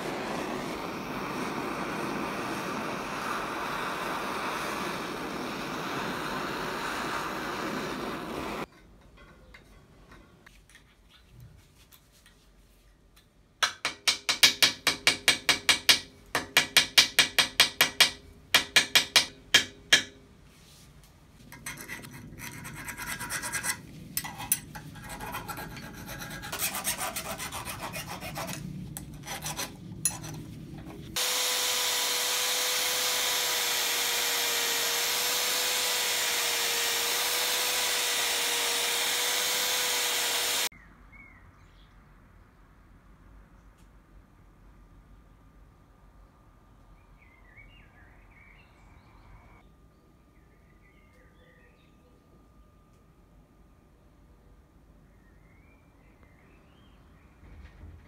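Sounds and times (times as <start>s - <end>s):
loud hiss with wavering hum: 0.0s - 8.7s
rubbing and scraping metal: 21.4s - 31.2s.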